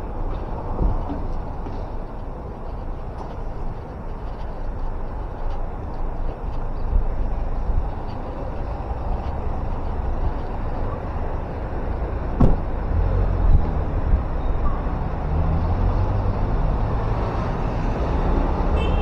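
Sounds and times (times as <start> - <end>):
traffic rumble: 0.0 - 19.0
sharp knock: 12.4 - 12.6.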